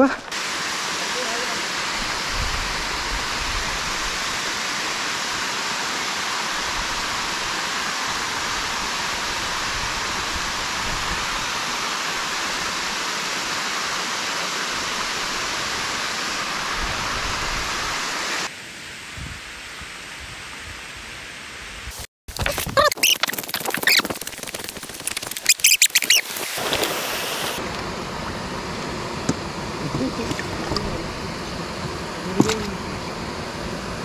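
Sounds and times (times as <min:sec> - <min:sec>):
water rushing down a dam wall: 0:00.3 - 0:18.5.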